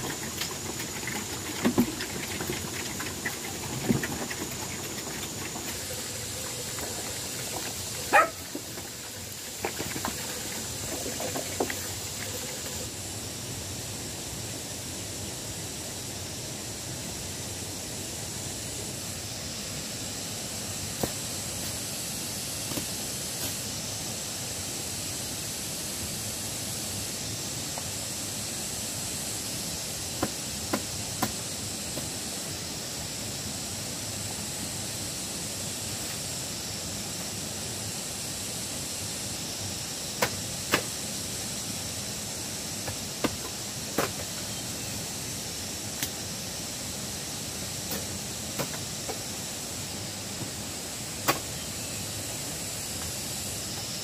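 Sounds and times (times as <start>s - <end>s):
steady outdoor hiss: 0.0s - 54.0s.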